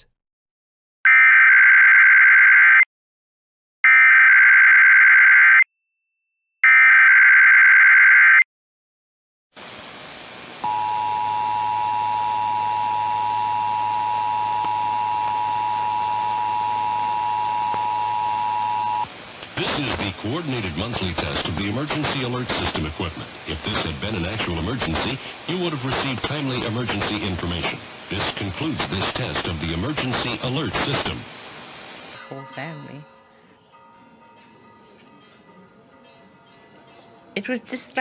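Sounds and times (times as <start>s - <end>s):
low hum: 10.4s - 19.2s
two-tone attention signal: 10.6s - 19.1s.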